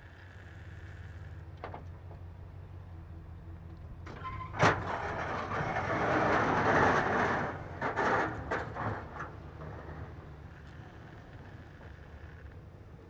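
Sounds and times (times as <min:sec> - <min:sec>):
truck engine running: 0:00.0 - 0:13.0
rough scraping noise: 0:04.2 - 0:12.5.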